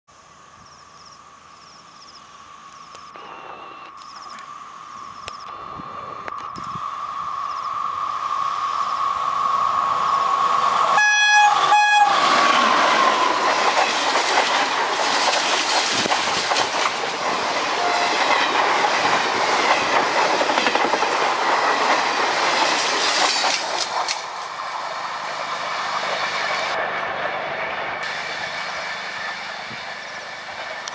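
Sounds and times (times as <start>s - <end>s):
electric locomotive whine: 0.1s - 30.9s
train horn blasts: 11.0s - 12.3s, 17.8s - 18.3s
train wheels clattering over rail joints: 12.4s - 24.5s.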